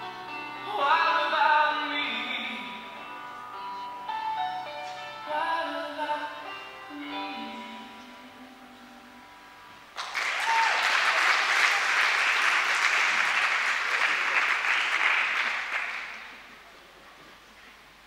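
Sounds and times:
audience applauding: 10.0 - 16.5.

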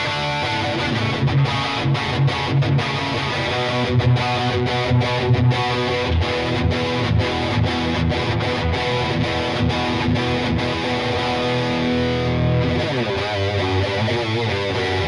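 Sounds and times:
distorted electric guitar: 0.0 - 15.0.

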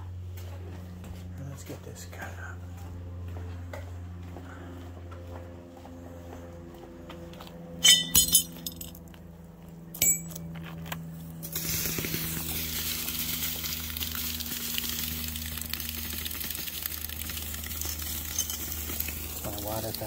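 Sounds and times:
sharp metallic clinks: 7.8 - 8.9, 10.0 - 10.4, 18.3 - 18.7
water sizzling on hot steel: 11.4 - 20.0.

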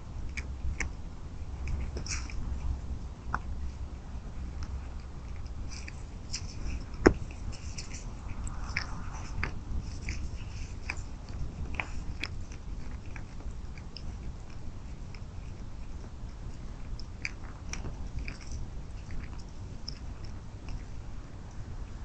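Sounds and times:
deer chewing feed: 0.1 - 22.0
low rumble: 1.5 - 12.2.

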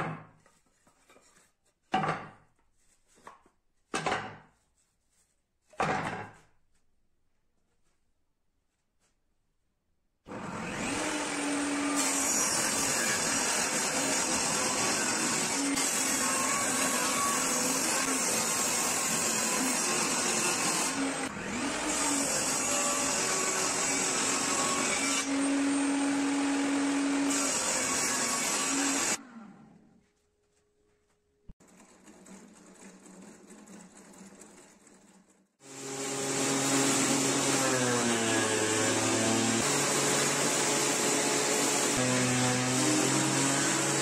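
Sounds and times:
table saw cutting wood: 10.3 - 29.3, 35.6 - 44.0.

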